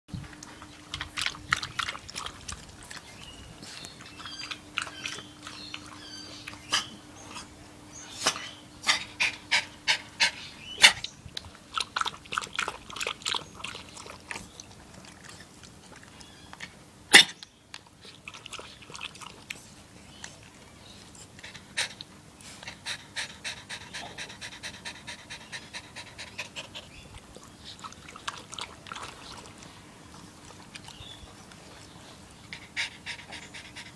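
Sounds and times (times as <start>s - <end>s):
small dog panting: 21.1s - 33.9s.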